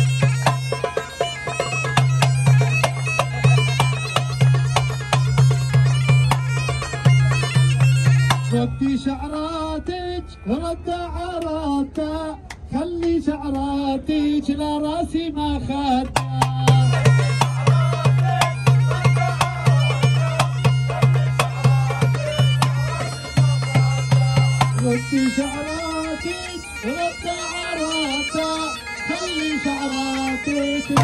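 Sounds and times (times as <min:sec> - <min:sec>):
darbuka beating a rhythm: 0:00.0 - 0:08.7, 0:16.1 - 0:31.0
bagpipes playing: 0:00.0 - 0:10.6, 0:16.6 - 0:31.0
man singing: 0:08.5 - 0:31.0
hand drum taps: 0:16.1 - 0:16.8.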